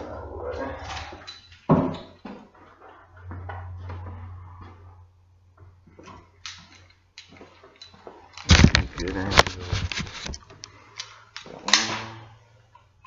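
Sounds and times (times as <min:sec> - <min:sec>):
low hum: 0:00.0 - 0:01.5, 0:02.9 - 0:06.1
objects knocking and clicking: 0:06.0 - 0:11.9.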